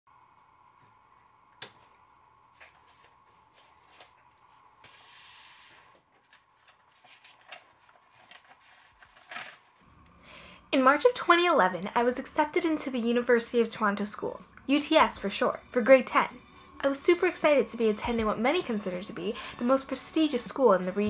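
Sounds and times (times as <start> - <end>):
paper rustling and tapping: 2.6 - 9.8
paper envelope sliding: 2.6 - 9.9.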